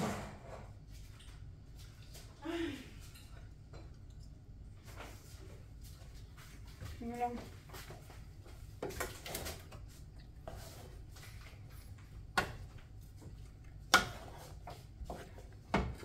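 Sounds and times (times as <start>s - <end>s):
utensil scraping rice in pan: 13.9s - 16.0s.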